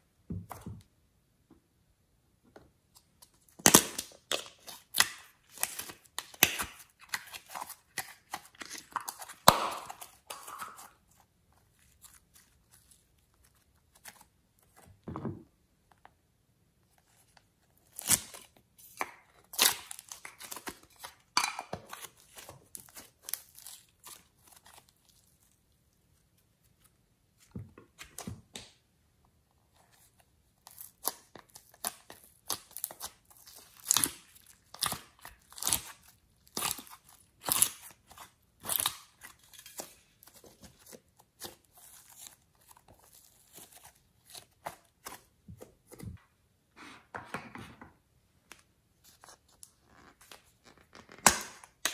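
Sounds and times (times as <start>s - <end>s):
plastic crackling and crinkling: 29.7s - 46.2s.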